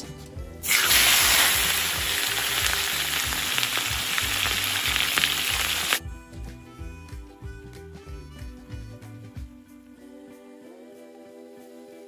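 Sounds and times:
quiet background music: 0.0 - 12.0
meat sizzling in hot oil: 0.6 - 6.0.

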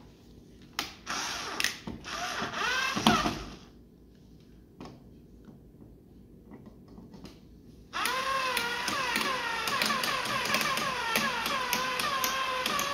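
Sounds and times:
cordless drill driving screw: 1.1 - 3.6, 8.0 - 12.9.

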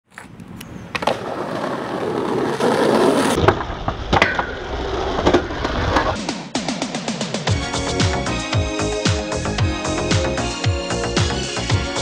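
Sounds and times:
skateboard wheels rolling on pavement: 0.0 - 6.2
skateboard pop: 0.1 - 6.2.

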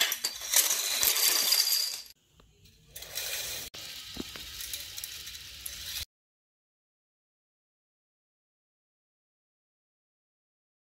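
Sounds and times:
plastic pieces clattering on tile floor: 0.0 - 2.2, 2.9 - 6.0
toy coaster car rattling on track: 3.0 - 6.0.

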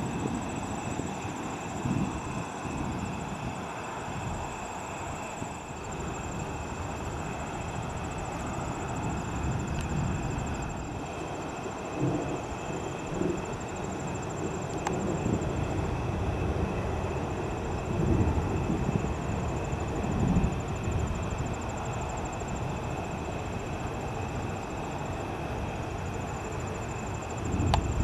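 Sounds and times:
steady outdoor hiss: 0.0 - 28.0
distant thunder rumbling: 5.8 - 21.6.

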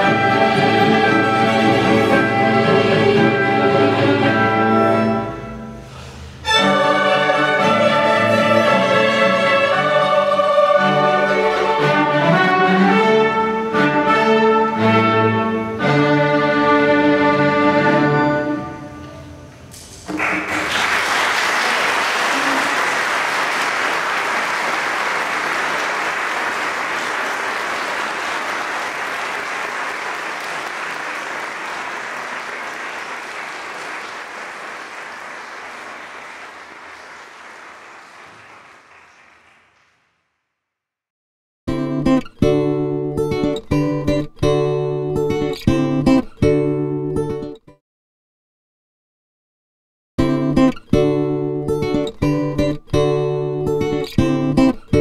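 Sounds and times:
string orchestra playing: 0.0 - 5.8, 6.4 - 19.2
audience applauding: 20.0 - 40.3.

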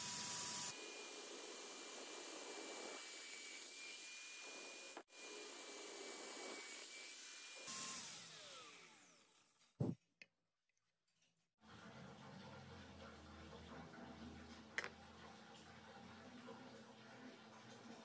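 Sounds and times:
electric drill boring wood: 0.0 - 9.5.

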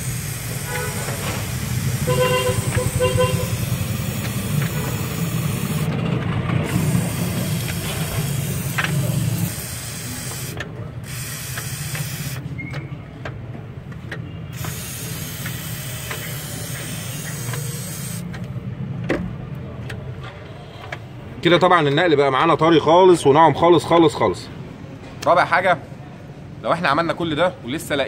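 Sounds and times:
aerosol can spray hissing: 0.0 - 5.9, 6.7 - 12.4, 14.6 - 18.2.

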